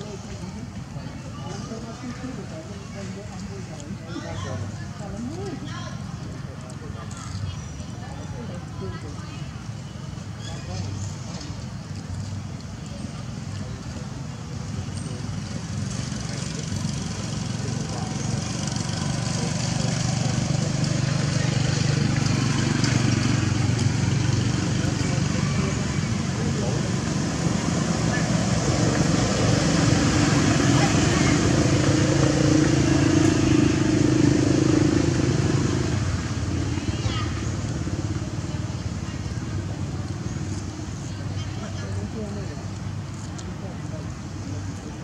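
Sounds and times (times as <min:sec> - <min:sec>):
engine humming: 0:10.2 - 0:45.0.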